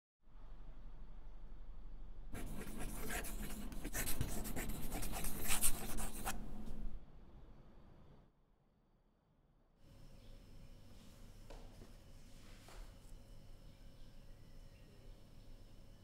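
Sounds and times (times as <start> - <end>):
faint low hum: 0.2 - 8.6, 9.5 - 16.0
pen scratching on paper: 2.4 - 6.4.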